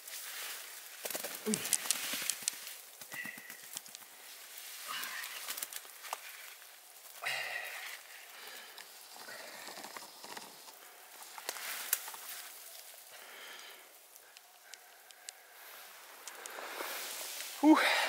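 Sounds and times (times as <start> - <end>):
footsteps in undergrowth: 0.0 - 14.2
branches and brush rustling: 0.0 - 18.0
twigs snapping: 0.6 - 17.6.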